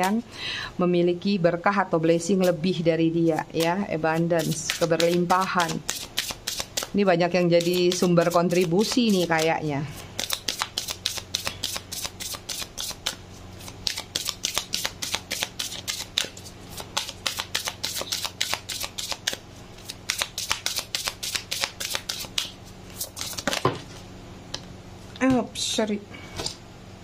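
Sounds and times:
cards being shuffled: 4.4 - 7.0, 10.2 - 24.0.

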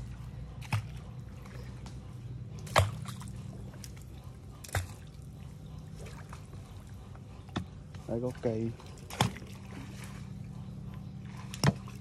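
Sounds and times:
steady low hum: 0.0 - 12.0
water sloshing and dripping: 0.0 - 12.0
sharp splashes: 2.6 - 3.4, 9.0 - 10.3, 11.2 - 12.0.

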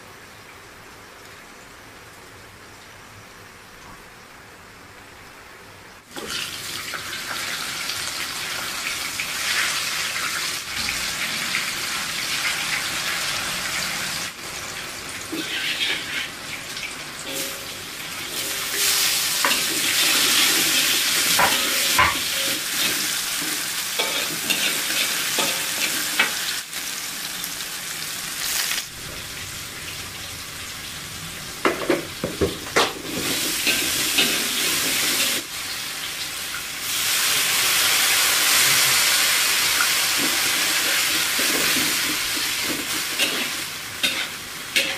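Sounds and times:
food sizzling in hot oil: 6.0 - 44.9
metal spatula scraping a wok: 15.4 - 16.4.

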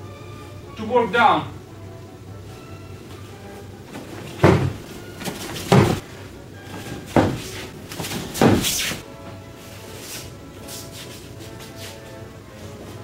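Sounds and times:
heavy thuds on padded mat: 3.9 - 6.1, 6.7 - 9.0.

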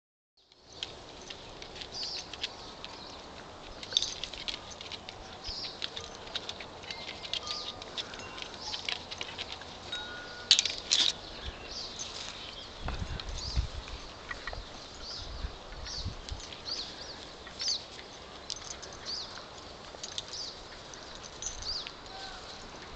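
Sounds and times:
dogs scuffling: 0.8 - 13.1
dog collar tags jingling: 3.8 - 11.2, 18.4 - 22.9.

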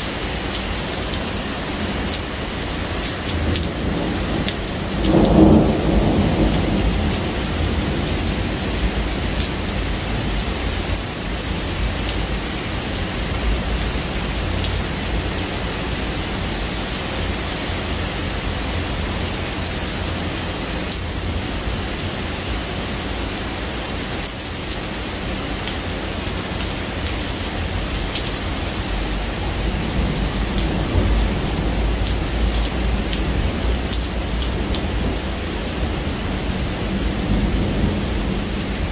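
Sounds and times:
heavy rain falling: 0.0 - 38.9
distant thunder rumble: 3.4 - 10.4.

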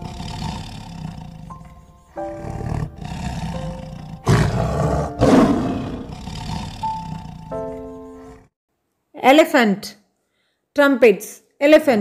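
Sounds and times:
background music: 0.0 - 8.5
tiger roaring: 0.0 - 8.5.

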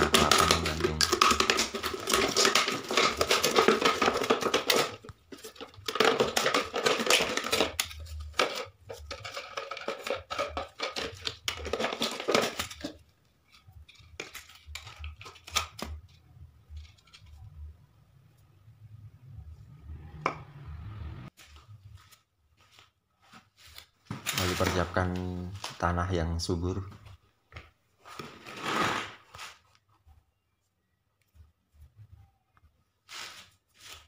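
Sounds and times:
plastic jar being cut: 0.0 - 13.0.

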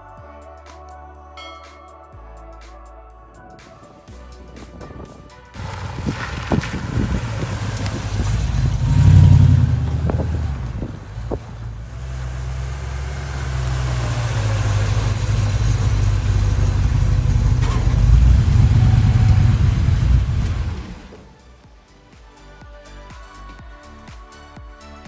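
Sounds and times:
pickup truck engine rumbling: 4.3 - 21.6.

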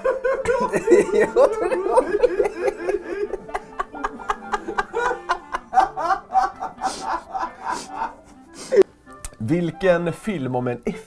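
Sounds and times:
men laughing hard: 0.0 - 8.8.

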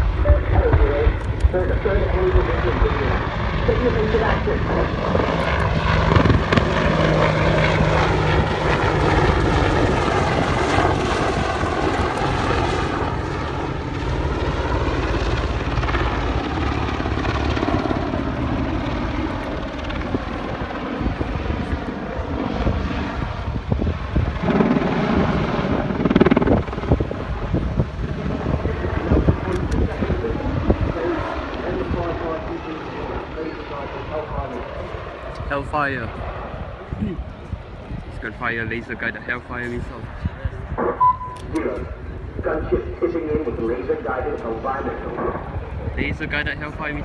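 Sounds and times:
helicopter rotor beating: 0.0 - 47.0
helicopter turbine whine: 0.0 - 47.0.

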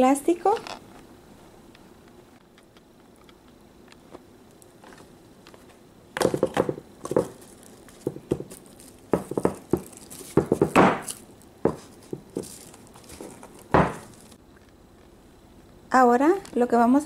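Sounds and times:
plastic wrap crinkling: 6.2 - 14.4.

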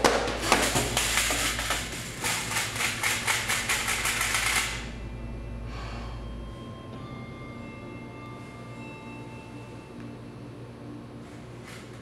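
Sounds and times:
rapid irregular clicking and rattling: 0.0 - 4.8
faint steady musical tones: 1.5 - 12.0.

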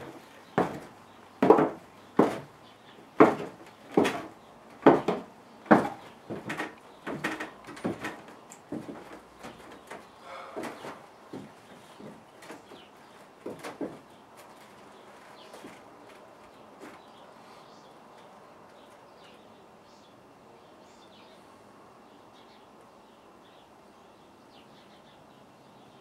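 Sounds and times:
boot footsteps on wooden floorboards: 0.0 - 2.5, 3.2 - 10.0, 10.6 - 12.8.

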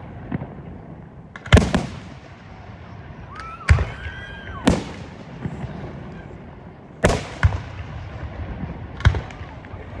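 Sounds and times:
firework shells booming: 0.0 - 2.7, 7.0 - 10.0.

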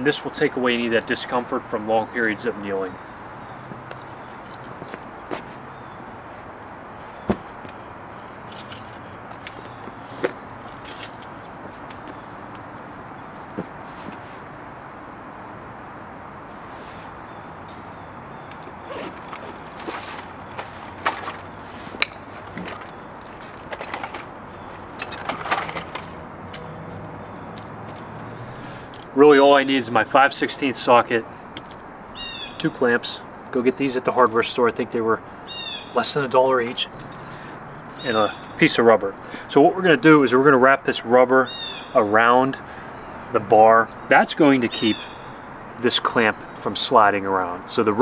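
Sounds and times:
insects chirring: 0.0 - 48.0
metal tools clinking: 8.5 - 9.7, 10.6 - 11.4, 18.5 - 24.3, 25.0 - 26.7, 36.0 - 38.6.

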